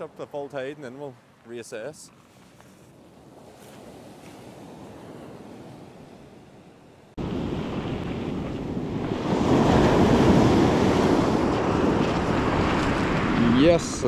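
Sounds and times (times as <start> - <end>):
surf washing onto beach: 0.0 - 14.0
wind buffeting microphone: 2.8 - 14.0.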